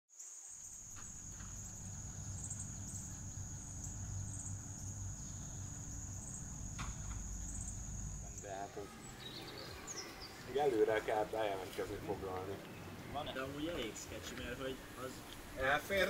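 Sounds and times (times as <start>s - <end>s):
insects trilling: 0.1s - 16.0s
low rumble: 0.8s - 10.0s.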